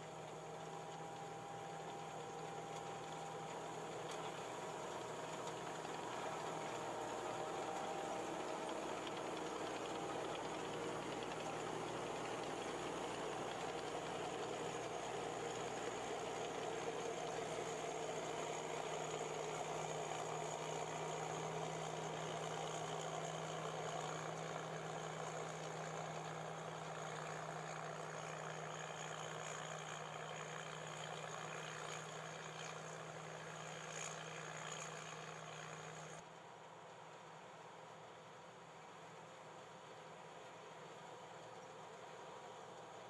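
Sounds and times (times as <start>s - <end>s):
combine harvester humming: 0.0s - 32.8s.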